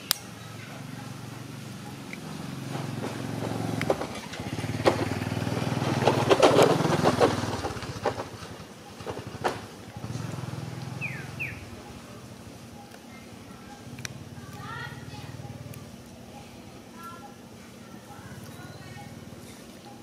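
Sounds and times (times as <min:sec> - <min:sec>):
sharp clicks: 0:00.0 - 0:00.4, 0:01.9 - 0:05.1, 0:13.8 - 0:14.7
motorbike engine passing by: 0:00.4 - 0:12.4.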